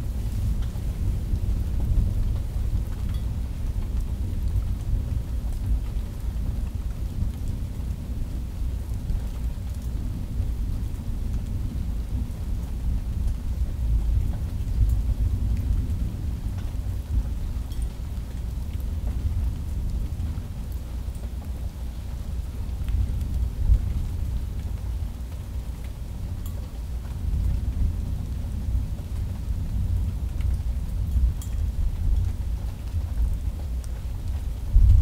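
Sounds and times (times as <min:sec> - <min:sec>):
falling rain: 0:00.0 - 0:35.0
low rumble of thunder: 0:00.0 - 0:35.0
faint drip ticks: 0:01.6 - 0:06.0, 0:14.1 - 0:28.0, 0:28.7 - 0:34.6.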